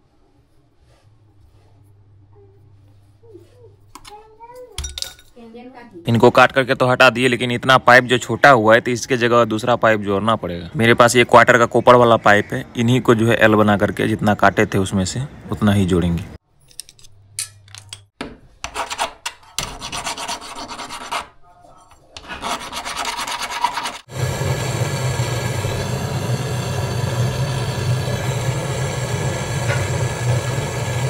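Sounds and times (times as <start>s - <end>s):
scraping copper pipe: 18.6s - 24.1s
gas torch flame hissing: 24.0s - 31.0s.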